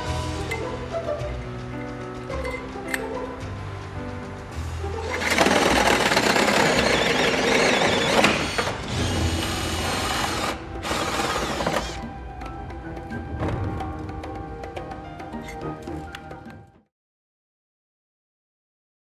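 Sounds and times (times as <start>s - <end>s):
background music: 0.0s - 16.9s
hole saw grinding through metal: 5.0s - 12.0s.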